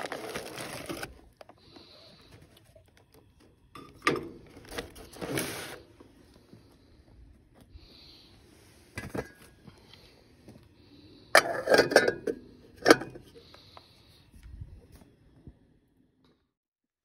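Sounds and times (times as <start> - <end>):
metal pan lid clattering: 11.4 - 13.2.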